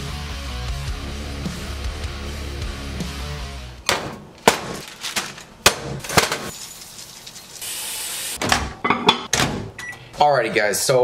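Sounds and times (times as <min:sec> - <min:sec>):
background music: 0:00.0 - 0:03.9
kitchen items clinking and knocking: 0:03.9 - 0:06.6, 0:08.4 - 0:09.5
plastic bag rustling: 0:04.4 - 0:05.6.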